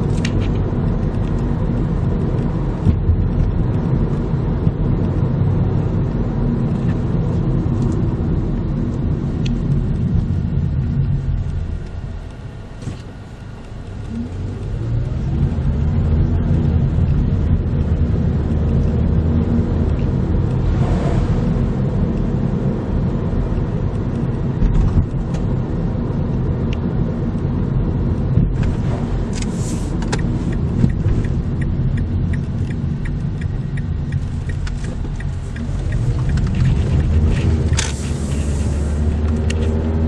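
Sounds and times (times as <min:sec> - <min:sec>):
car engine and road rumble: 0:00.0 - 0:40.0
light ticking: 0:30.1 - 0:37.2.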